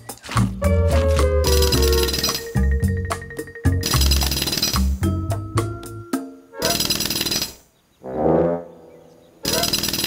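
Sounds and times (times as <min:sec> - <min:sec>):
cartoon elephant trumpeting: 0:06.6 - 0:06.9, 0:09.4 - 0:09.8
loud buzzing rattle: 0:09.5 - 0:10.0.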